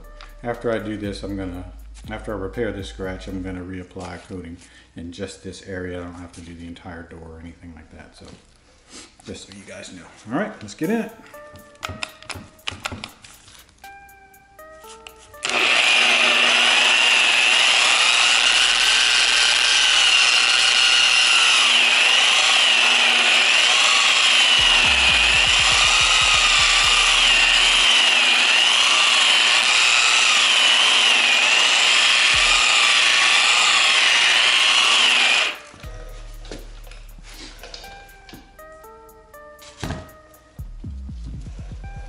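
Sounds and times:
polisher motor whine: 15.4 - 37.8.

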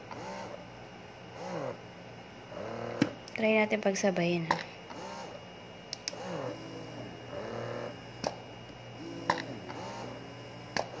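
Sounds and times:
breast pump motors whining: 0.0 - 11.0
sharp pump clicks: 5.9 - 6.2.

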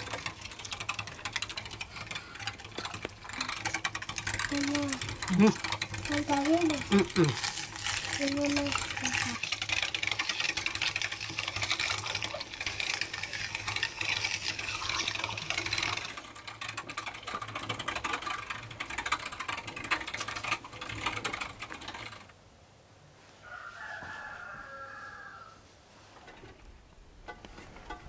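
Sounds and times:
meat grinder clicking and crunching: 0.0 - 22.3
rooster crowing: 23.4 - 25.7.

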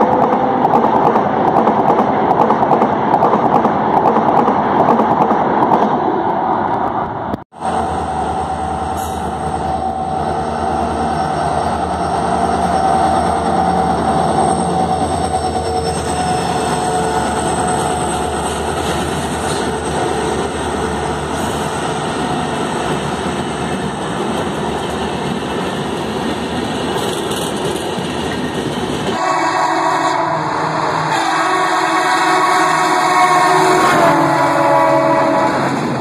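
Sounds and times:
train passing at speed: 0.0 - 36.0
locomotive horn: 29.1 - 35.8.

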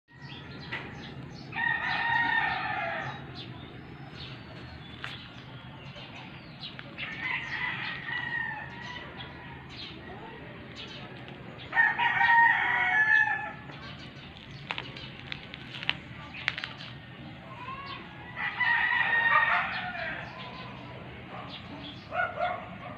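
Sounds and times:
rooster crowing: 1.5 - 3.2, 7.0 - 9.6, 11.7 - 13.6, 18.3 - 20.5.

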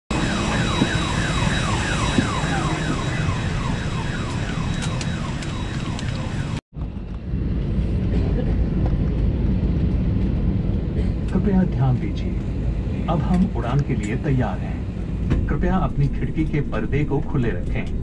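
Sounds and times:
electronic alarm warbling: 0.1 - 6.6
airliner cabin rumble: 0.1 - 18.0.

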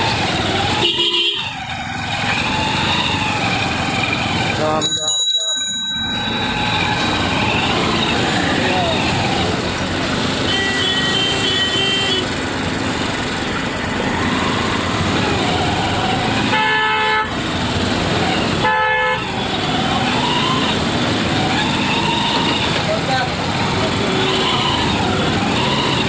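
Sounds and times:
road traffic noise: 0.0 - 26.0
vehicle horn honking: 0.7 - 1.6, 10.4 - 12.3, 16.4 - 17.4, 18.6 - 19.4.

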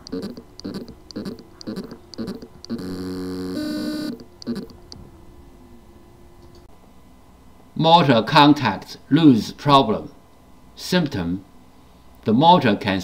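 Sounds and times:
hard drive motor pulsing buzz: 0.0 - 5.1
hard drive motor humming: 0.0 - 6.6.

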